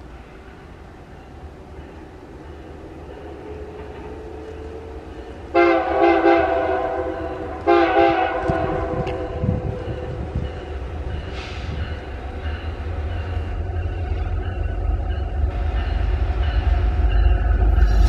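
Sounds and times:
diesel engines rumbling: 1.5s - 18.0s
diesel locomotive horn: 4.9s - 10.3s.

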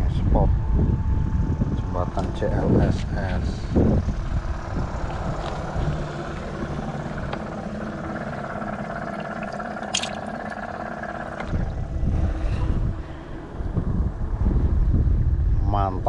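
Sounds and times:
aerator pump buzzing: 0.0s - 16.0s
water sloshing: 5.0s - 12.4s
sharp splash: 9.9s - 10.3s.

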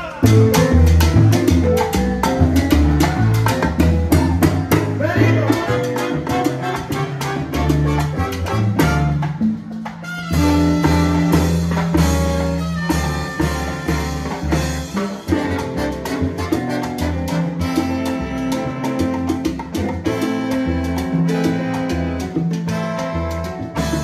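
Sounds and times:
bass: 0.0s - 24.0s
latin percussion: 0.0s - 24.0s
trombones and trumpets: 5.0s - 24.0s.

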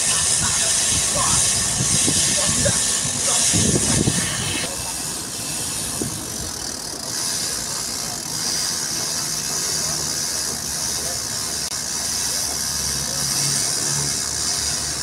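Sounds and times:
wind hiss: 0.0s - 6.6s.

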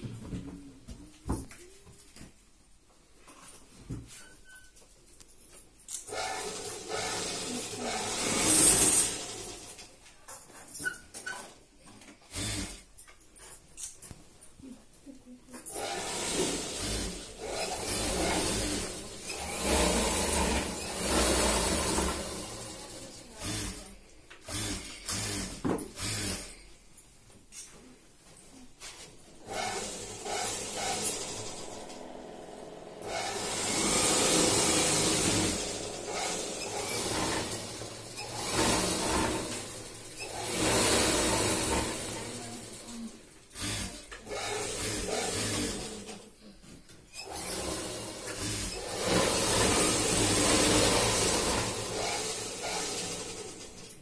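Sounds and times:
sewing machines running: 5.9s - 9.9s, 12.3s - 12.8s, 15.7s - 26.5s, 29.3s - 46.2s, 47.1s - 54.0s
steady motor hum: 29.3s - 42.6s.

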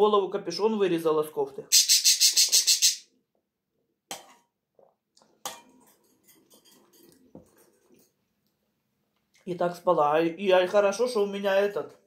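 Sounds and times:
soft eating noises: 4.8s - 9.5s
metal spoon clinking bowl: 5.4s - 7.7s.

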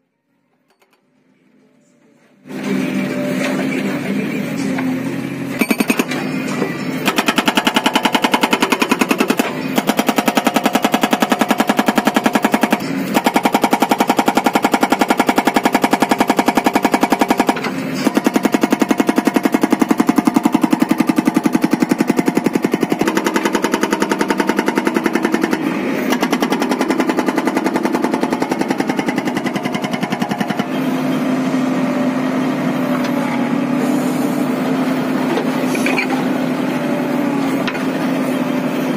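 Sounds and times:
hydraulic breaker hammering rock: 5.5s - 33.4s
engine hum: 15.4s - 38.9s.

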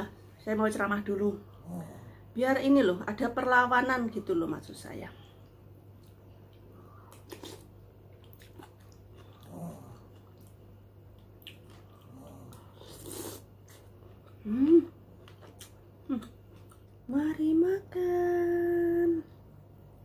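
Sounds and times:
slurp of broth: 12.8s - 13.5s.

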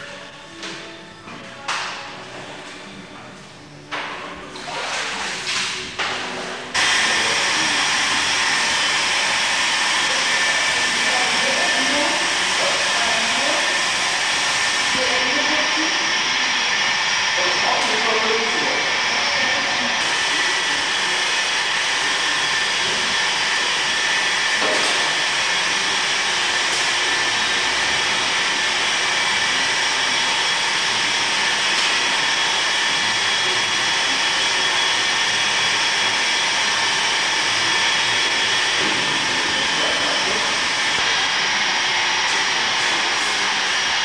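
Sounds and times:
electric pump whining: 2.3s - 44.0s.

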